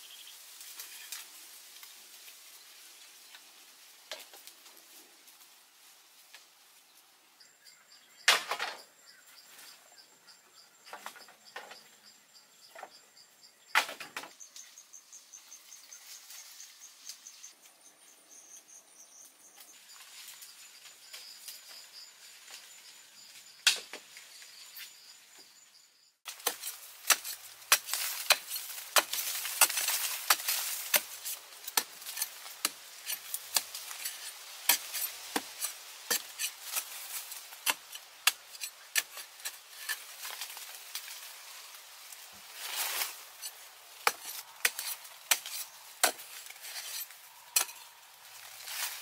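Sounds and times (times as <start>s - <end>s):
digging tool chopping hard earth: 26.3s - 36.9s
earth clods crumbling and scraping: 26.3s - 49.0s.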